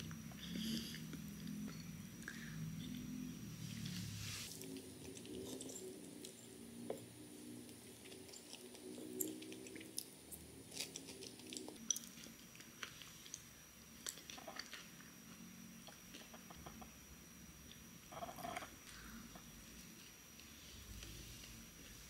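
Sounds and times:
soft chewing and biting: 4.5 - 16.9.

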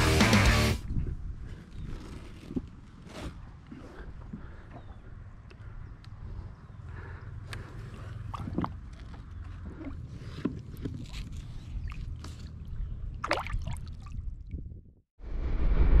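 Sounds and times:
low wind and water rumble: 7.6 - 16.0.

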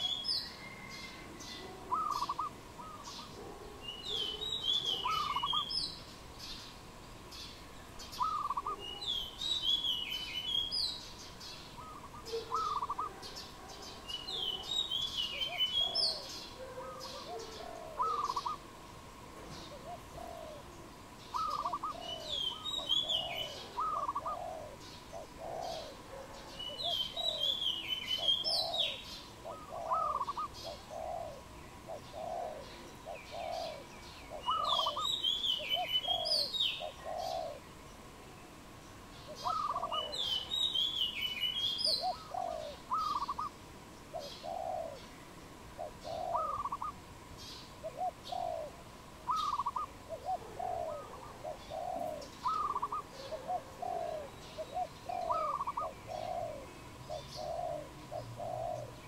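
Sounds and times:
dove cooing: 0.0 - 5.8, 8.2 - 9.3, 11.8 - 18.7, 19.5 - 37.7, 39.3 - 40.9, 41.8 - 45.1, 45.8 - 47.0, 47.8 - 59.0
songbird high twittering: 3.9 - 6.6, 39.4 - 43.5, 49.3 - 49.9.

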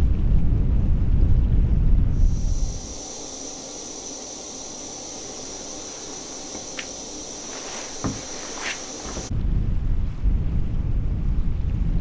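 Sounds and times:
faint hiss: 2.2 - 9.3
thin high whine: 2.2 - 9.3
soft thump: 8.0 - 9.3.

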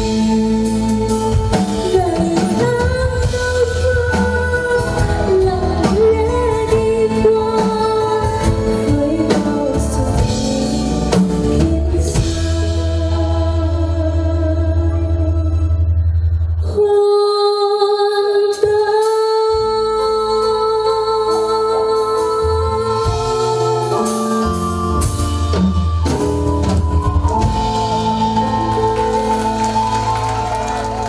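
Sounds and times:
woman singing with vibrato: 0.0 - 15.9, 16.6 - 25.2
bass guitar: 0.0 - 16.9, 19.5 - 31.0
keyboard chords: 21.6 - 31.0
drums with cymbal strikes: 23.0 - 28.6.

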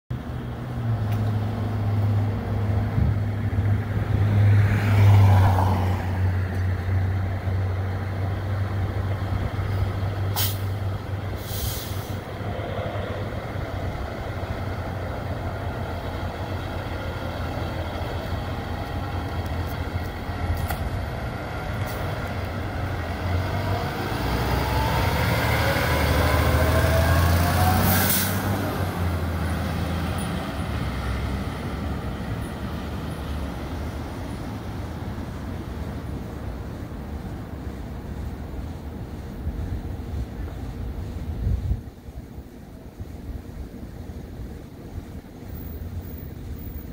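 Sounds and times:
diesel truck engine running: 6.8 - 35.2
air brake hisses: 10.3 - 10.8, 11.4 - 12.3, 27.9 - 28.5.

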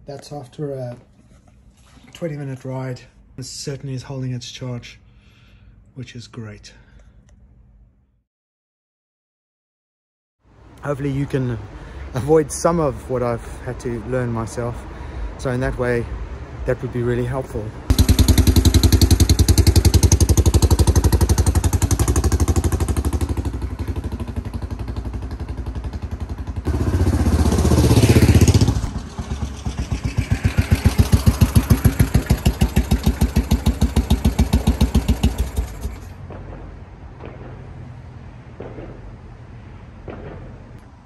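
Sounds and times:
motorcycle passing by: 17.9 - 36.2
motorcycle engine thumping: 17.9 - 37.6.

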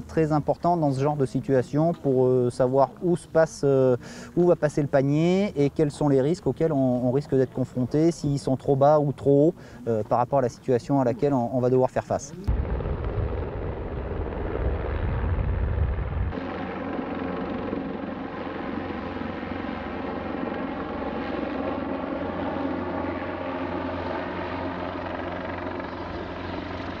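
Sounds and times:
deep low rumble: 12.5 - 16.4
helicopter rotor drone: 12.5 - 27.0.

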